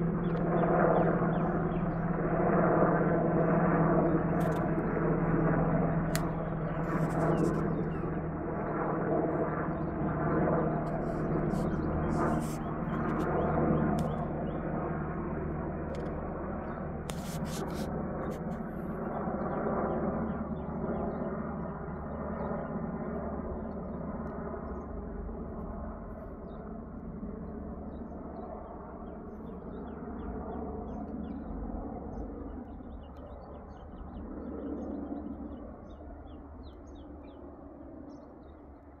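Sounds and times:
helicopter rotor and engine drone: 0:00.0 - 0:39.0
small birds chirping: 0:03.4 - 0:14.8, 0:27.9 - 0:38.8.

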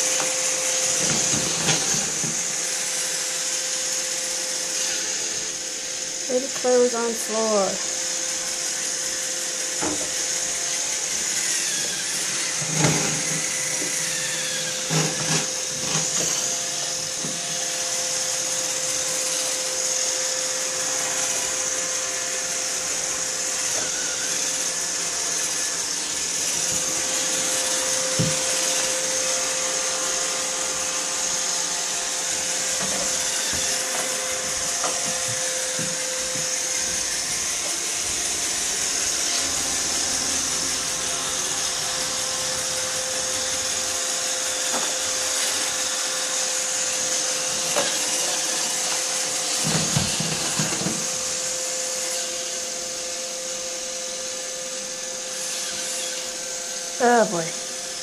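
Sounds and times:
robot vacuum motor whine: 0:00.0 - 0:58.0.

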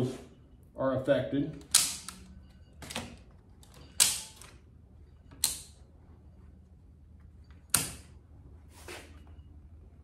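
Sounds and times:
circuit breaker clicks: 0:05.4 - 0:05.8.

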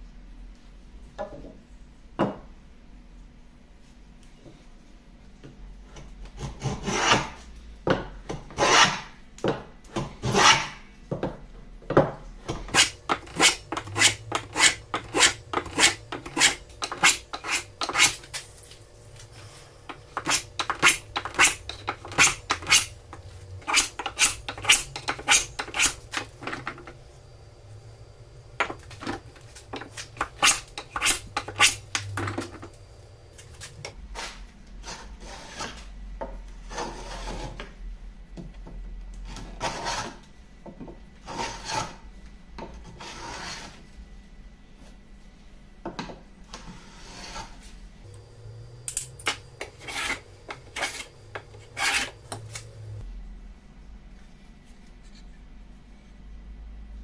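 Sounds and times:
hand plane shaving wood: 0:12.7 - 0:18.4, 0:19.2 - 0:26.9, 0:28.5 - 0:32.6, 0:49.2 - 0:53.0.

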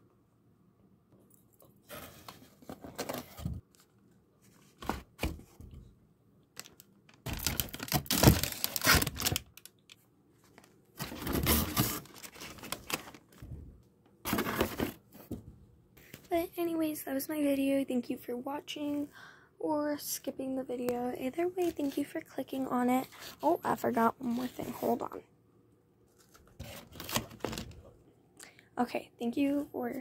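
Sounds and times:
plastic wrapping crinkling: 0:06.6 - 0:13.4
items set down in cardboard box: 0:14.2 - 0:15.4.

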